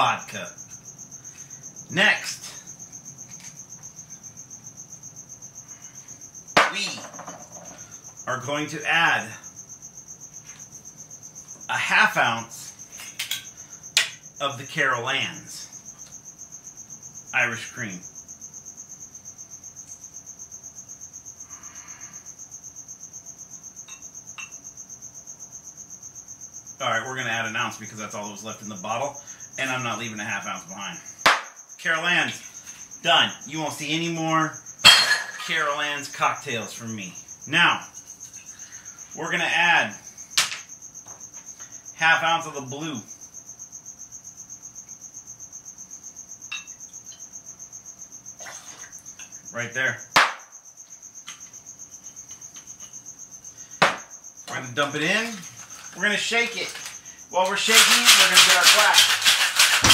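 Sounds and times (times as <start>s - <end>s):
cricket chirping: 0.0s - 59.9s
insect trilling: 0.0s - 59.9s
bottle clinking against glass: 34.8s - 35.5s.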